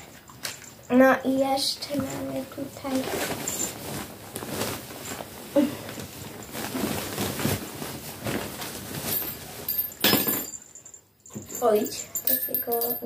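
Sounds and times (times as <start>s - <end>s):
plush toys rustling in hands: 0.0s - 10.1s.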